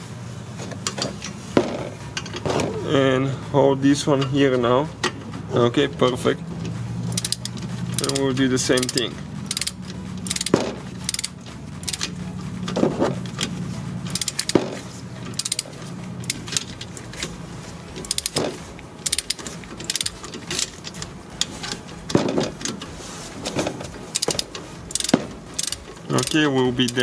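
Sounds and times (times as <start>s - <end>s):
steady low hum: 0.0s - 27.0s
torque wrench ratchet clicking: 7.1s - 12.2s, 13.4s - 14.6s, 15.2s - 17.3s, 18.0s - 21.5s, 24.1s - 27.0s.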